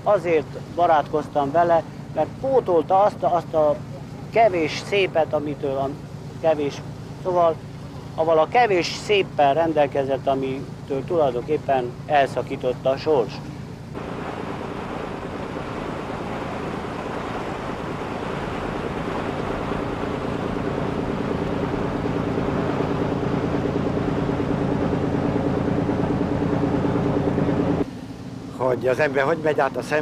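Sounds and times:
rush of water: 0:00.0 - 0:27.9
boat engine running: 0:00.0 - 0:30.0.

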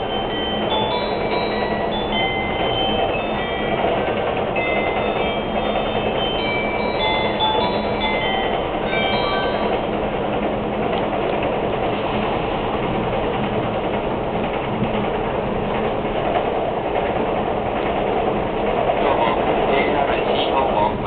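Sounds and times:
announcement chime: 0:00.0 - 0:09.8
train wheels rumbling on rails: 0:00.0 - 0:21.0.

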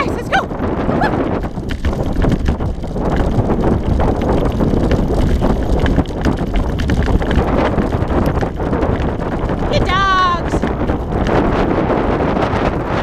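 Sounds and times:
sled rumbling and crunching: 0:00.0 - 0:13.0
wind buffeting microphone: 0:00.0 - 0:13.0
small clicks and crunches from ground: 0:01.2 - 0:09.7, 0:10.6 - 0:12.4.

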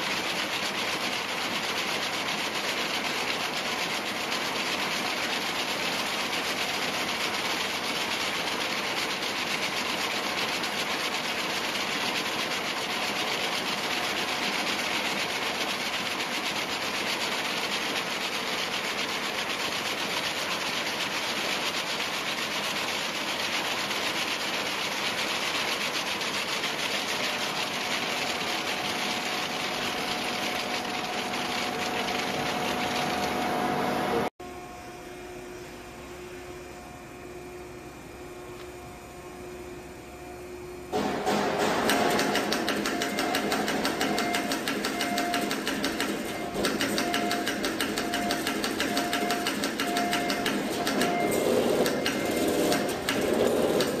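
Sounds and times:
braiding machine rushing and rubbing: 0:26.1 - 0:34.3, 0:41.0 - 0:54.0.

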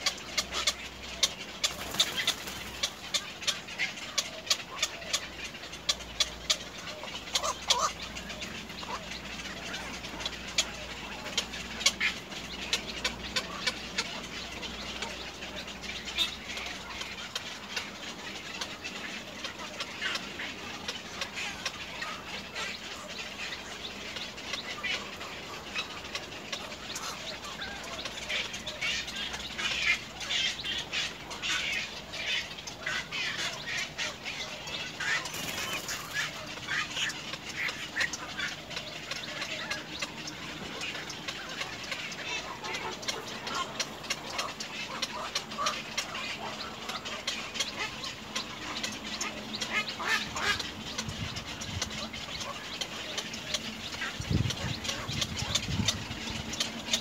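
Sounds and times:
birds chirping and clicking: 0:00.0 - 0:57.0.

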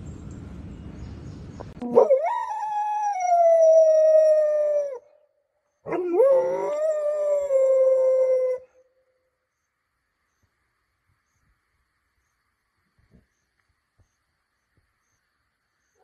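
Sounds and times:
dog howling: 0:05.9 - 0:08.8.

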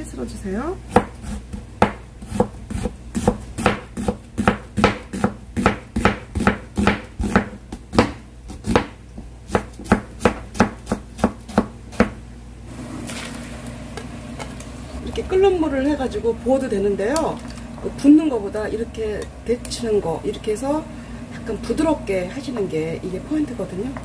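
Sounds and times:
knife chopping on cutting board: 0:00.9 - 0:12.2.

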